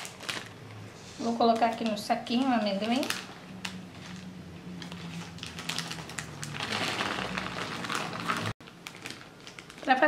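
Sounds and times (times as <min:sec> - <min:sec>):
plastic bag crinkling: 0:00.0 - 0:00.6, 0:01.2 - 0:10.0.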